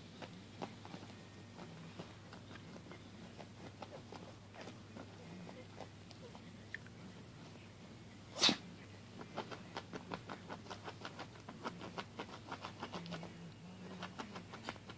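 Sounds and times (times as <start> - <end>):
puppy sneezing: 8.3 - 8.7.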